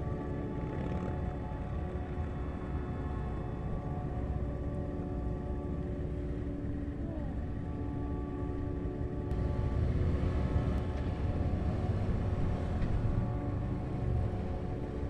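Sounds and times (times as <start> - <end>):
motorcycle engine rumble: 9.3 - 15.0.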